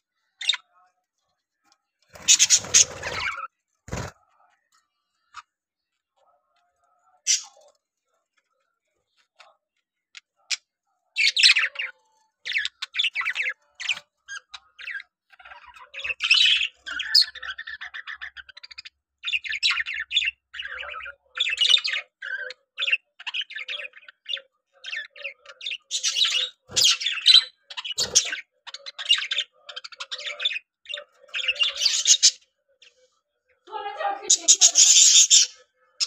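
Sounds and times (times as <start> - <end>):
budgerigars chattering: 2.2 - 4.2, 7.3 - 7.6, 11.2 - 32.4, 34.3 - 36.0.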